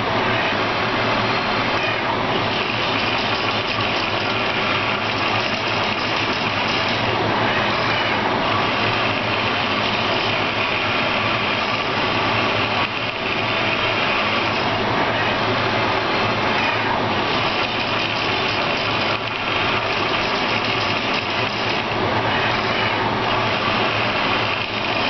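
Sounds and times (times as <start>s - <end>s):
printer motors whirring: 0.0s - 25.0s.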